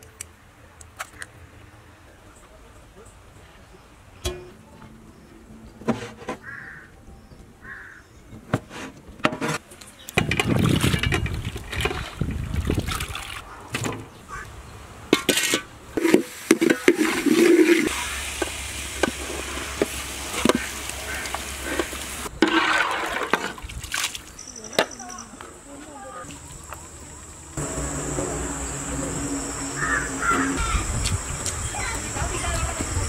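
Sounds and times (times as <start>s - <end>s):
ladle clanking and scraping pot: 4.2s - 4.6s, 15.1s - 23.6s
food sizzling and splashing: 16.0s - 24.2s
steady low hum: 26.3s - 33.0s.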